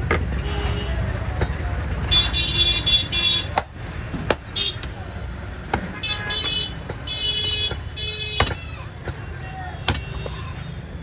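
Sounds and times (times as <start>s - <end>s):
traffic rumble: 0.0s - 11.0s
vehicle horns tooting: 0.3s - 1.2s, 2.0s - 3.6s, 5.9s - 8.5s, 9.1s - 10.9s.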